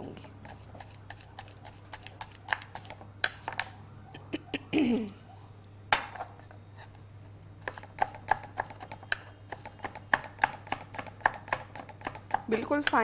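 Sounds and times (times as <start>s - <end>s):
knife chopping on wooden board: 0.5s - 3.6s, 7.6s - 13.0s.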